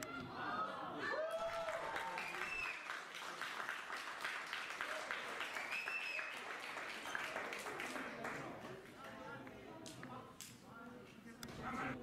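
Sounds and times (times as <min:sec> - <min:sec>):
spectators clapping: 0:01.2 - 0:09.6.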